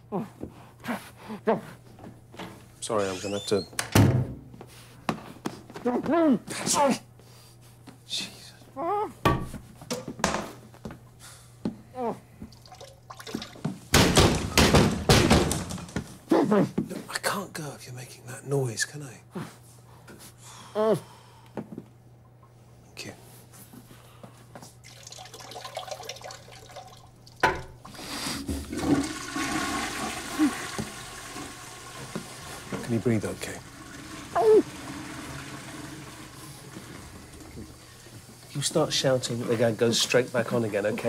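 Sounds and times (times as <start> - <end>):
water rushing into toilet bowl: 12.5 - 13.7, 24.8 - 41.0.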